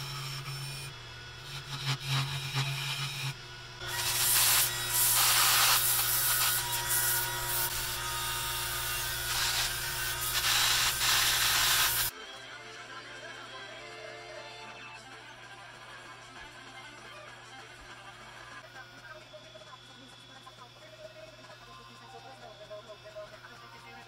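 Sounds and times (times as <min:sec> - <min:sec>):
lathe motor hum: 0:00.0 - 0:12.1
sanding disc hissing on wood: 0:00.0 - 0:12.1.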